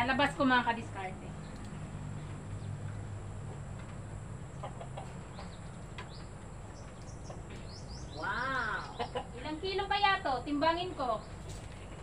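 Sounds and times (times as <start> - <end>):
chickens clucking: 2.2 - 9.9.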